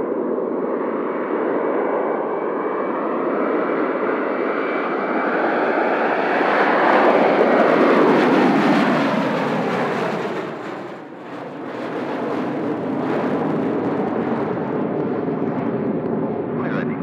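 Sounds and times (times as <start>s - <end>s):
airliner engines passing: 0.0s - 17.0s.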